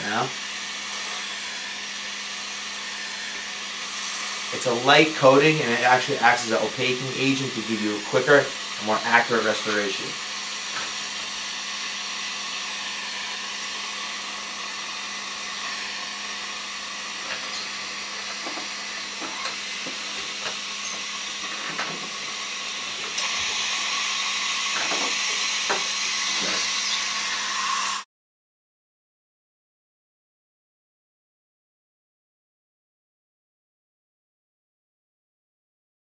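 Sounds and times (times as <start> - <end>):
dental air equipment hissing: 0.0 - 28.1.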